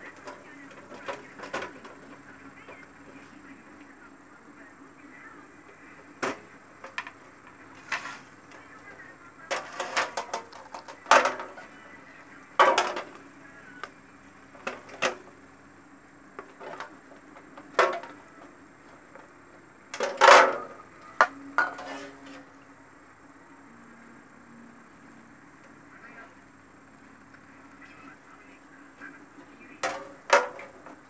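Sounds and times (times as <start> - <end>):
plastic parts clattering on tiled floor: 9.5 - 11.6, 29.8 - 31.0.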